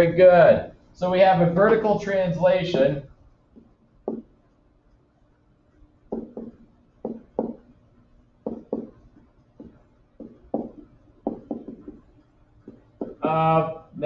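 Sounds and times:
stylus tapping on screen: 3.4 - 5.0, 6.0 - 7.8, 8.4 - 13.3.

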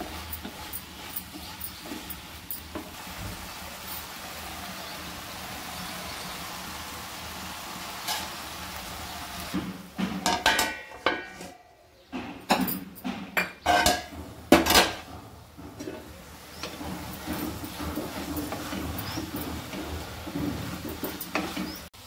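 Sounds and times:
metal spoon scraping a pan: 0.0 - 3.0, 15.8 - 21.9.

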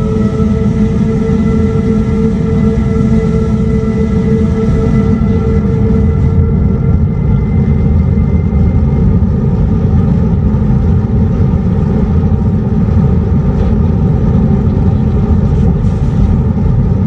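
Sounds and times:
synthetic warning tones: 0.0 - 8.0
loud low rumble: 0.0 - 17.0.

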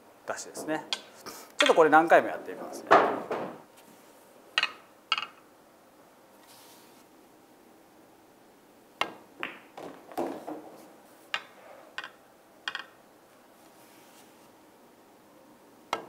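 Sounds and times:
pool balls clacking: 0.4 - 3.7, 4.6 - 5.5, 9.0 - 13.1
balls knocking off cushions: 2.9 - 3.7, 9.0 - 10.9
cue striking ball: 9.0 - 13.0.

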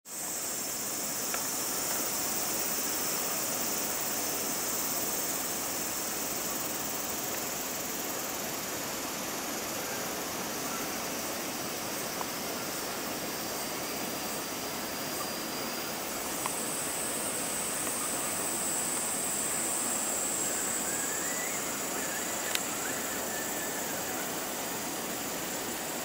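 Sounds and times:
shrill insect chorus: 0.1 - 26.0
faint ticks: 1.2 - 2.1, 22.5 - 22.7.

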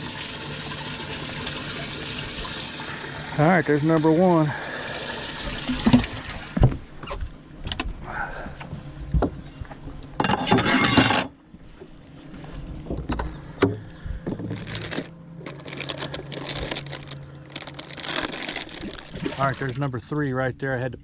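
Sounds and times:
faint steady hum: 0.0 - 21.0
knocks and clatter on boat deck: 8.7 - 10.4, 12.8 - 14.6.

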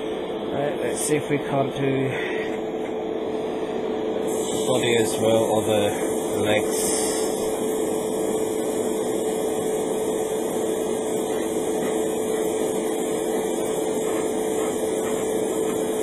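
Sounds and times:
small electric motor humming: 3.7 - 16.0.

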